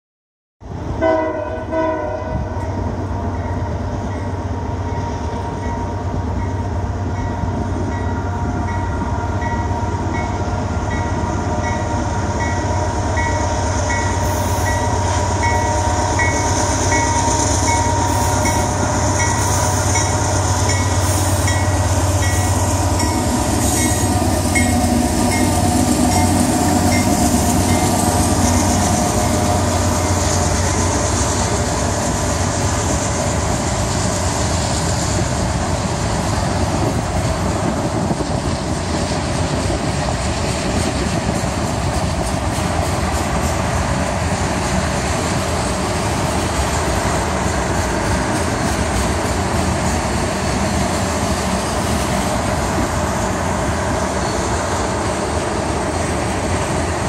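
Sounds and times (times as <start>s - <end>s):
diesel locomotive rumble: 0.6s - 57.0s
train horn: 1.0s - 2.6s.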